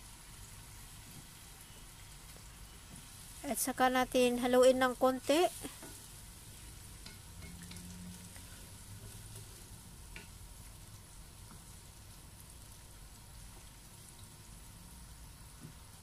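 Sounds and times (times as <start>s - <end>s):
meat sizzling in a pan: 0.0s - 16.0s
spatula tapping a pan: 5.8s - 6.1s, 7.0s - 7.9s, 10.1s - 10.4s.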